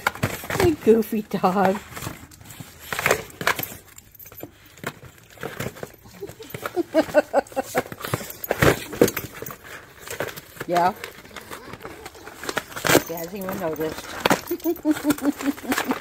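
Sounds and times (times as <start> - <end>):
dog scratching and ripping cardboard: 4.7 - 16.0.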